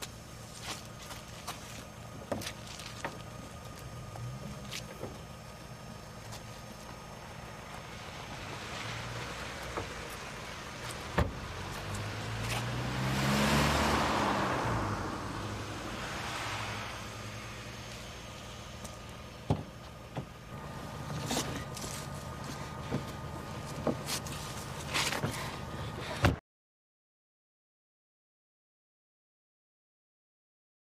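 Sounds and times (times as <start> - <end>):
car passing on wet road: 7.8 - 18.6.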